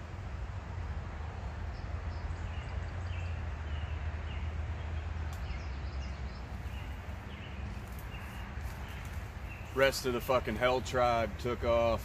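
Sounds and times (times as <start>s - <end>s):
bird chirping: 1.7s - 11.2s
faint click: 5.3s - 5.5s.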